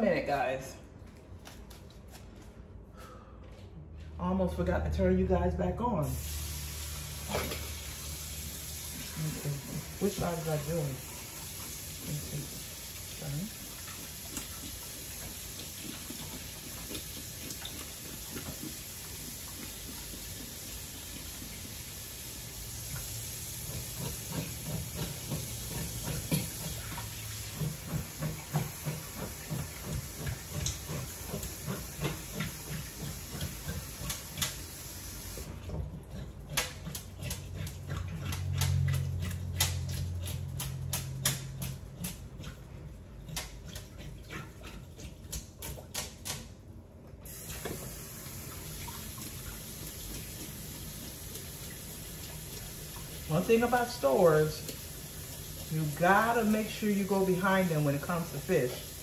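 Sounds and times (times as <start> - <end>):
running water hiss: 6.0 - 35.5, 47.3 - 59.0.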